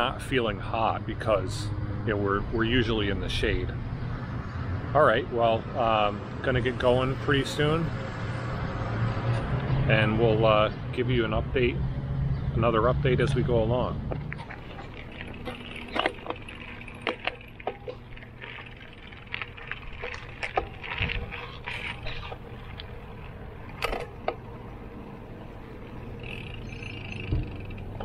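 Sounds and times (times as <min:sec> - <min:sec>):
road and wind rumble: 0:00.0 - 0:28.0
bicycle clicks and rattles: 0:14.1 - 0:24.6, 0:25.7 - 0:28.0.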